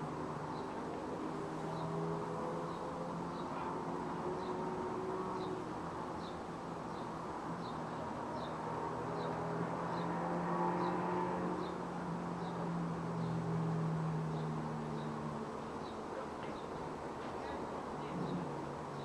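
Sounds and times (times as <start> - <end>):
distant traffic hum: 0.0 - 19.0
bird chirping: 1.4 - 10.2, 14.1 - 19.0.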